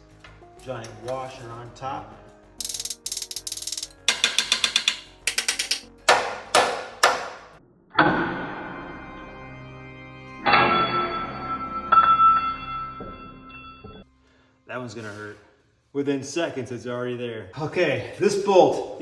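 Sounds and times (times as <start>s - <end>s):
ratchet wrench clicking: 2.6s - 5.9s
piano music: 8.4s - 14.1s
ringing metallic knocks: 10.4s - 14.0s.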